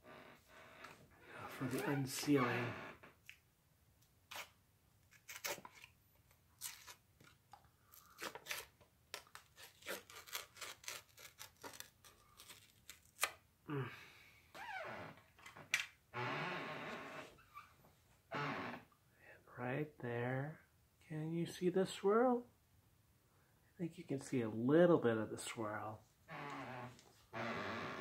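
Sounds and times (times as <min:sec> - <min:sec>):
paper and cardboard crackling: 0:08.0 - 0:13.3
short vocal sounds: 0:13.7 - 0:14.1.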